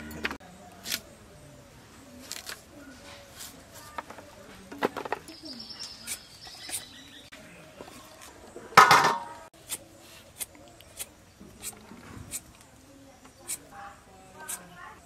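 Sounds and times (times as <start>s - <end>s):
metal plate clattering: 8.8s - 9.4s.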